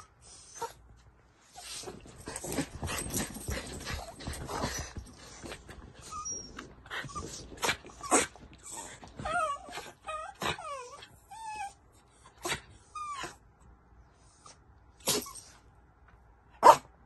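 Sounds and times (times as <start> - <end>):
small dogs whining: 3.5 - 11.8.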